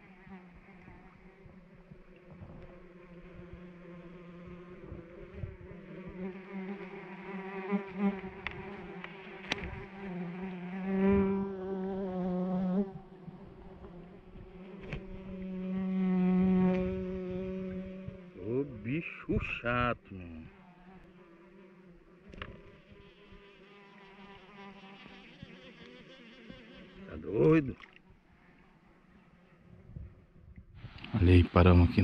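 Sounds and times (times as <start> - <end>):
flying insect buzzing: 0.0 - 29.8.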